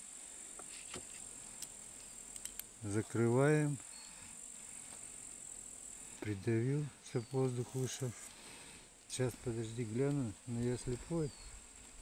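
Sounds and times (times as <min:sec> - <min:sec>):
insects chirring: 0:00.0 - 0:12.0
faint handling clicks: 0:00.9 - 0:02.7.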